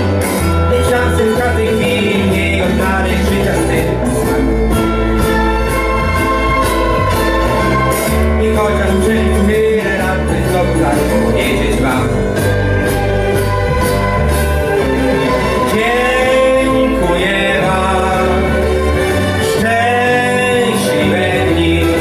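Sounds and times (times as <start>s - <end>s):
instrumental backing with bass: 0.0s - 22.0s
man singing into microphone: 0.6s - 4.5s, 8.2s - 12.6s, 15.6s - 22.0s.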